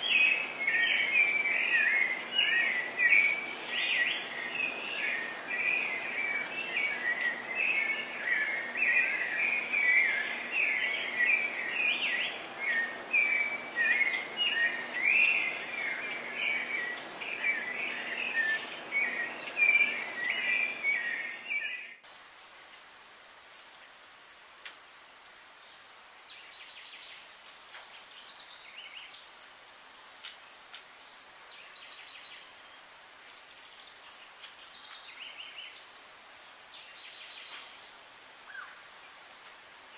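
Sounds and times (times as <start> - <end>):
birds chirping and chattering: 0.0 - 22.0
high-pitched insect drone: 0.0 - 25.9
faint ticks: 24.6 - 24.8, 30.2 - 30.9.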